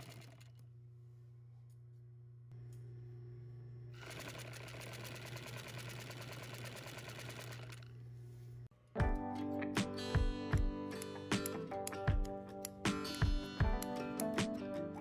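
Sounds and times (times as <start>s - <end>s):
sewing machine motor humming: 0.0s - 0.6s, 3.9s - 8.0s
sewing machine needle running: 0.0s - 0.6s, 4.0s - 7.9s
guitar music: 9.0s - 15.0s.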